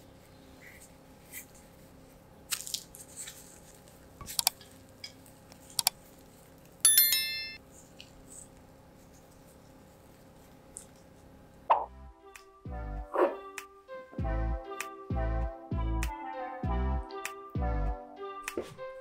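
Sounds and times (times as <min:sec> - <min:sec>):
bread crust crackling: 0:01.2 - 0:06.8
notification bell chime: 0:06.9 - 0:07.6.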